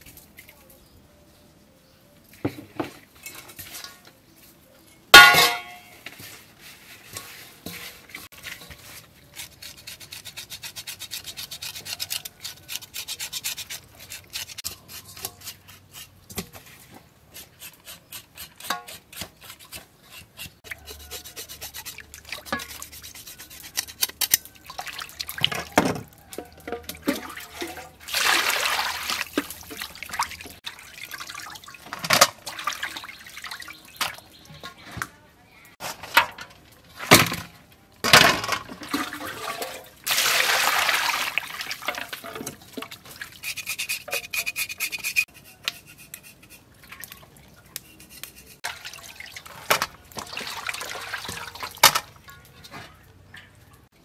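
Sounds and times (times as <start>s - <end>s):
hands washing fish in water: 17.9s - 34.4s, 38.5s - 53.9s.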